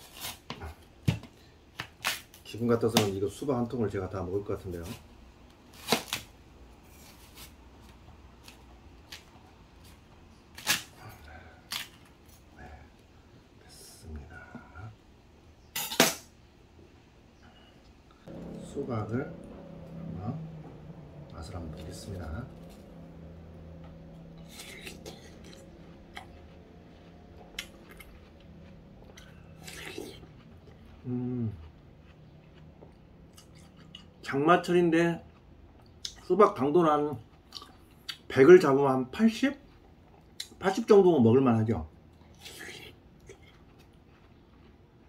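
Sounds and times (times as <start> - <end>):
faint room hum: 0.0 - 45.0
watermelon being chewed: 19.3 - 36.4, 37.1 - 38.3, 39.6 - 40.8, 42.1 - 45.0.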